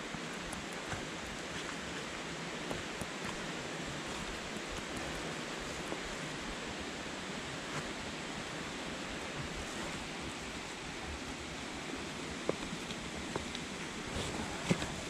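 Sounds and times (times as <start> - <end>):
creek rushing: 0.0 - 15.0
footsteps on trail: 0.3 - 6.5.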